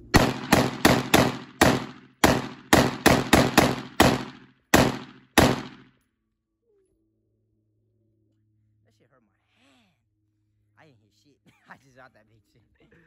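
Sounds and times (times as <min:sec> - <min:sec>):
pistol gunshots with echo: 0:00.0 - 0:05.9.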